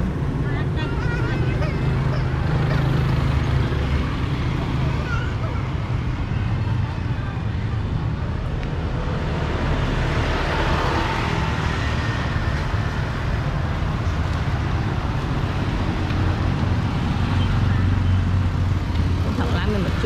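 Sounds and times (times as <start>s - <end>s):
motorbikes and cars passing: 0.0s - 20.0s
tuk-tuk passing close: 0.0s - 20.0s.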